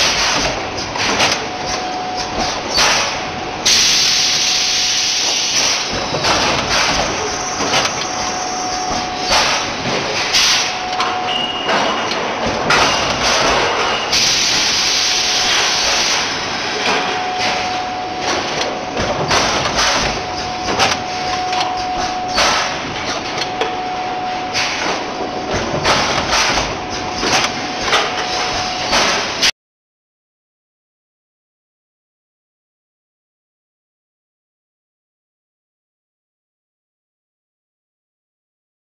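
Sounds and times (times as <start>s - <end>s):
testing machine running: 3.3s - 29.0s.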